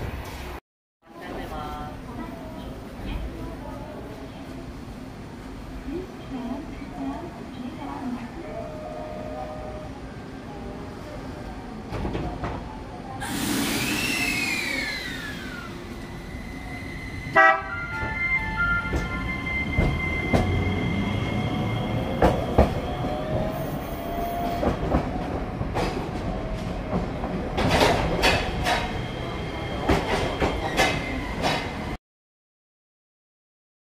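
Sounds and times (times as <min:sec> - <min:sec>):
tram electric whine: 0:13.2 - 0:32.0.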